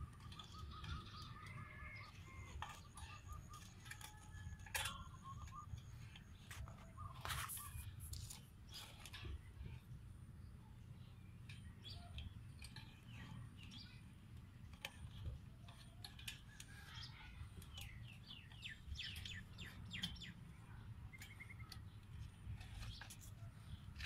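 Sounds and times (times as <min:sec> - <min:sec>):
faint bird chirps: 0:04.8 - 0:08.0.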